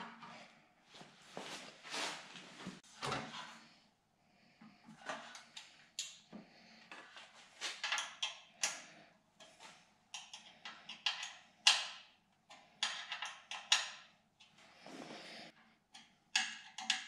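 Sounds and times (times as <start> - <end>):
screwdriver clicking and scraping: 6.9 - 14.5, 15.9 - 17.0.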